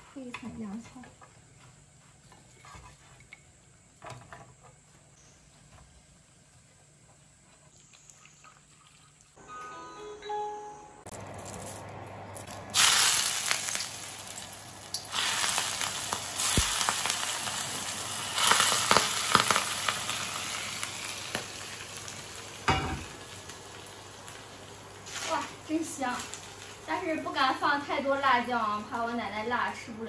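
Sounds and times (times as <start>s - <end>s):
sauce sizzling in hot pan: 12.7s - 29.9s.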